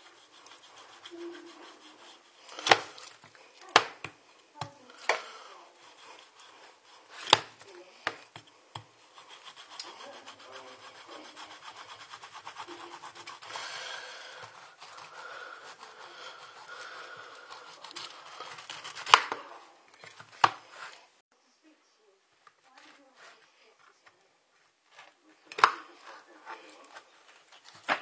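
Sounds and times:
knife sawing through pineapple: 0:00.0 - 0:19.4.

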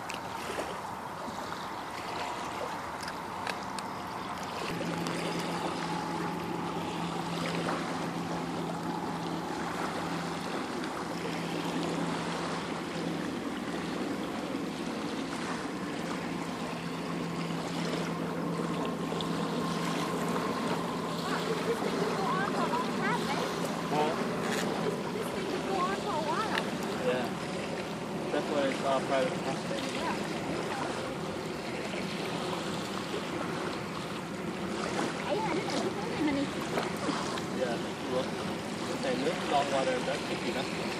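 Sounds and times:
small waves lapping on sand: 0:00.0 - 0:40.9
steady low hum: 0:00.0 - 0:40.9
wind and water noise: 0:00.0 - 0:40.9.

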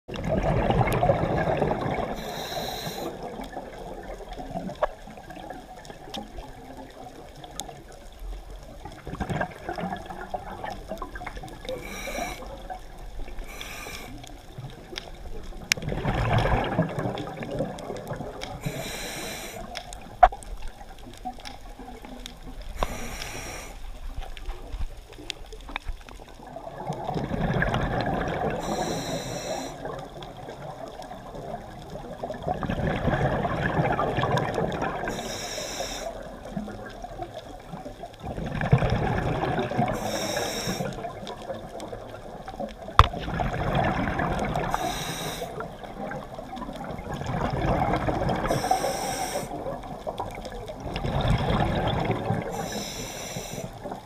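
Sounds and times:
bubbling exhale: 0:00.1 - 0:03.7, 0:11.5 - 0:14.5, 0:15.7 - 0:20.0, 0:22.7 - 0:24.0, 0:26.5 - 0:30.1, 0:38.2 - 0:41.3, 0:43.2 - 0:49.8, 0:50.8 - 0:54.0
regulator hissing inhale: 0:02.1 - 0:03.3, 0:11.6 - 0:12.6, 0:13.3 - 0:14.4, 0:18.6 - 0:19.8, 0:22.8 - 0:24.0, 0:28.6 - 0:29.9, 0:35.1 - 0:36.3, 0:39.9 - 0:41.1, 0:44.7 - 0:45.7, 0:48.4 - 0:49.6, 0:52.5 - 0:53.9.

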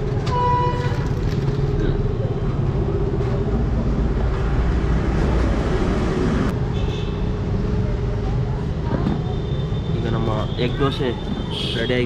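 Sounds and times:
street background rumble and hiss: 0:00.0 - 0:12.0.

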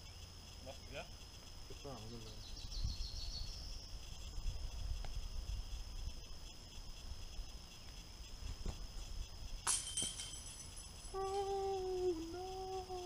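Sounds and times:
wind rumble on microphone: 0:02.4 - 0:09.7
disc hitting metal basket chains: 0:09.6 - 0:11.5.

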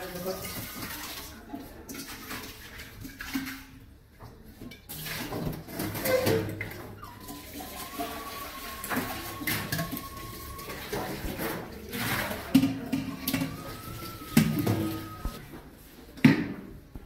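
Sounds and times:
water running and splashing: 0:00.0 - 0:03.8, 0:07.0 - 0:15.4
pot knocking and scraping on sink: 0:04.7 - 0:15.4.

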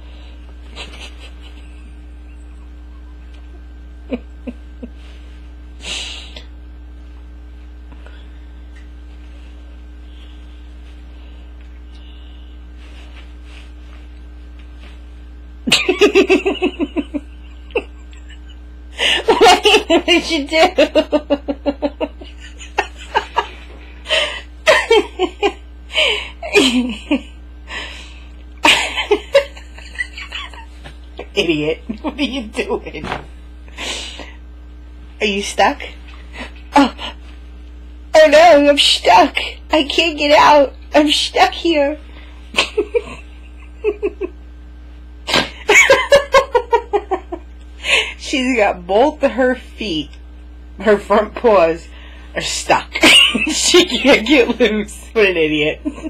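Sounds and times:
low electrical hum: 0:00.0 - 0:56.0
person laughing: 0:00.6 - 0:03.3, 0:04.0 - 0:05.2, 0:15.7 - 0:27.4, 0:28.6 - 0:33.2, 0:42.5 - 0:44.4, 0:45.3 - 0:48.2, 0:53.0 - 0:54.6.

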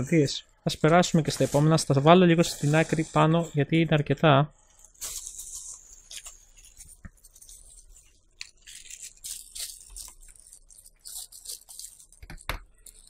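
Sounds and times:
plastic packaging crinkling: 0:04.6 - 0:13.0.

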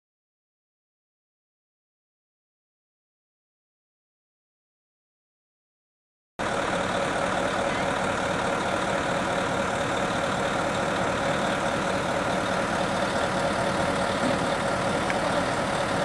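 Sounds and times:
fire truck engine idling: 0:06.4 - 0:16.0.

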